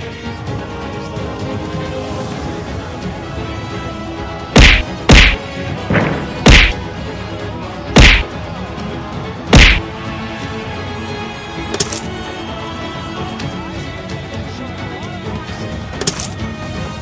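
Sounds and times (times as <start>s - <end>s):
boxing punches thwacking: 4.6s - 5.4s, 6.0s - 6.8s, 8.0s - 8.3s, 9.6s - 9.8s.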